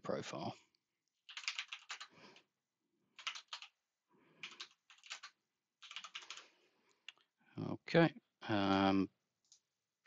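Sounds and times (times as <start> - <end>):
computer keyboard typing: 1.2 - 2.5, 3.1 - 7.2.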